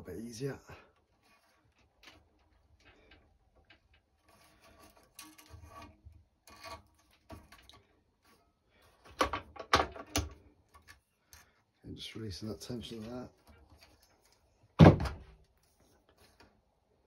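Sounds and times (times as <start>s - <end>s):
string rustling: 0.7s - 9.2s, 12.6s - 17.0s.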